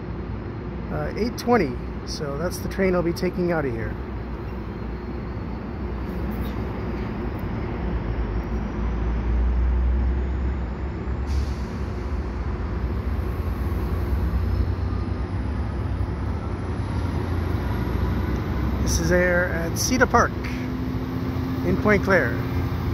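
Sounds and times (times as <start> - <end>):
diesel locomotive rumble: 0.0 - 22.9
faint rising whine: 3.3 - 22.9
short air hiss: 11.3 - 12.0.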